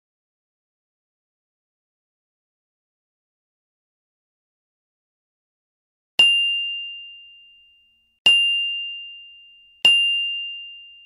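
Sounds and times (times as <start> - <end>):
notification bell dings: 6.2 - 11.0.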